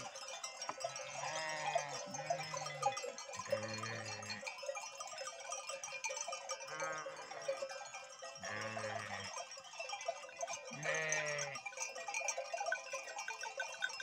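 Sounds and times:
sheep bleating: 0.9s - 2.8s, 3.5s - 4.4s, 6.7s - 7.4s, 8.4s - 9.4s, 10.7s - 11.6s.

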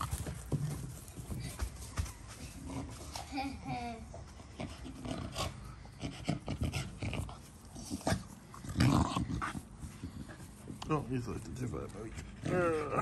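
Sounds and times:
dog breathing hard: 4.3s - 13.0s.

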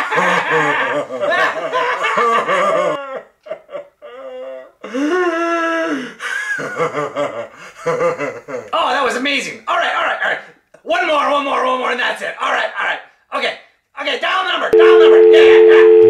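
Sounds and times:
men laughing: 0.0s - 4.7s, 6.2s - 8.7s.

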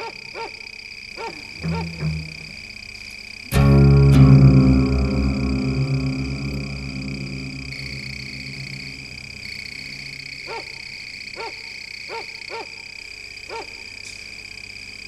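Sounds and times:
high-pitched insect trill: 0.0s - 13.0s
animal calls rising and falling: 1.6s - 2.7s
low musical drone: 1.6s - 2.8s, 3.5s - 10.3s.

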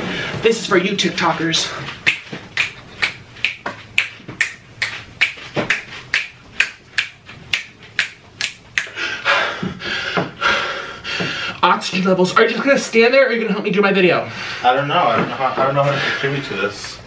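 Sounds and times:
finger snaps: 2.1s - 9.0s
man panting heavily: 8.8s - 11.6s, 15.8s - 16.5s.

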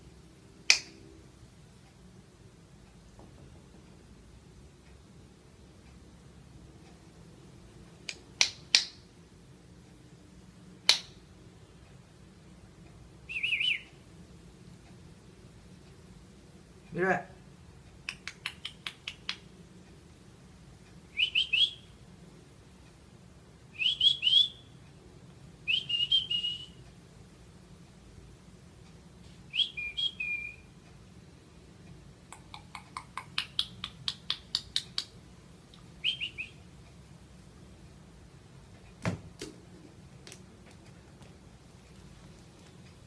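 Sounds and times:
small bird chirping: 13.3s - 14.0s, 18.1s - 19.4s, 21.1s - 22.0s, 23.7s - 24.8s, 29.5s - 30.7s, 32.3s - 35.2s, 36.0s - 36.7s.

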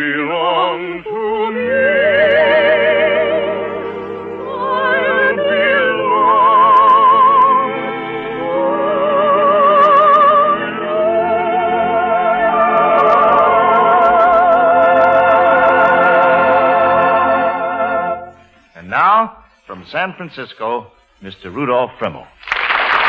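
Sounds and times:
operatic singing with vibrato: 0.0s - 19.1s
orchestral accompaniment: 1.5s - 18.4s.

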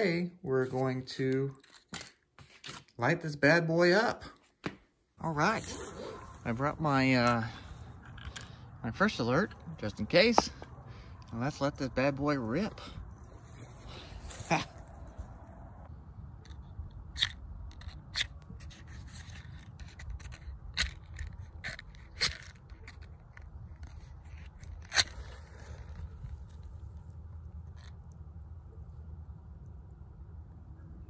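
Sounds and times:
match scratching on matchbox: 17.2s - 26.7s.

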